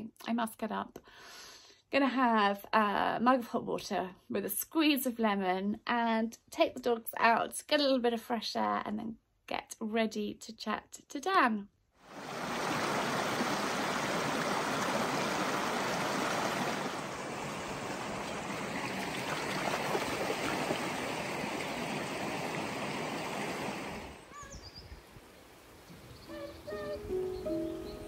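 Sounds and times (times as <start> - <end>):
stream babbling over stones: 12.1 - 24.3
dogs splashing through water: 12.2 - 24.2
faint bird chirps: 24.3 - 28.0.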